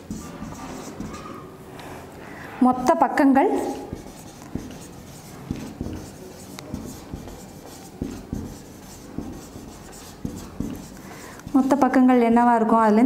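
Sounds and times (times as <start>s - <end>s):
marker pen writing on board: 0.0s - 1.5s, 3.4s - 12.0s.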